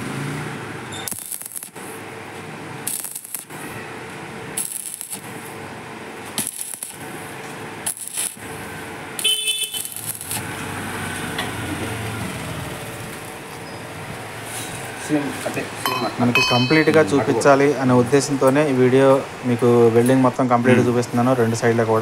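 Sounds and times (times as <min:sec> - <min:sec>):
welding arc crackling: 0:00.0 - 0:15.6
low steady noise: 0:15.6 - 0:22.0.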